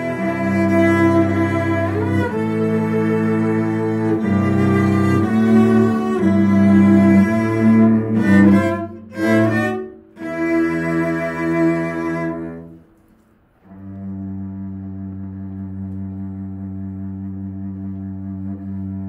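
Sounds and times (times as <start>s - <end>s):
cello quartet bowed chords: 0.0s - 19.0s
dull low sustained tone: 13.7s - 19.0s.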